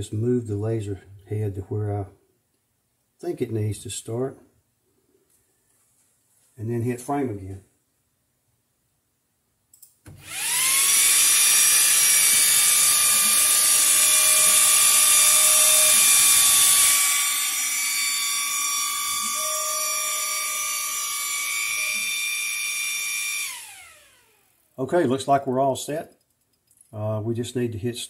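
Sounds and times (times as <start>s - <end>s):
lower motor tone: 10.2s - 24.4s
laser engraver motor whine: 10.2s - 24.6s.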